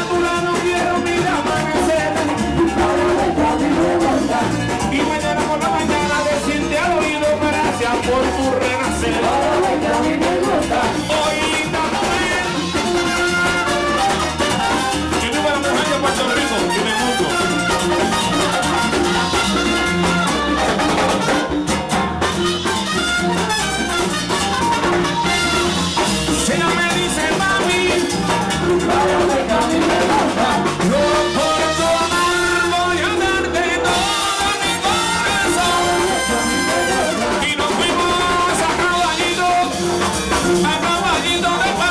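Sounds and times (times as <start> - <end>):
person singing into a microphone: 0.0 - 13.6, 26.4 - 41.9
congas: 0.0 - 41.9
hand drums: 0.0 - 41.9
keyboard: 0.0 - 41.9.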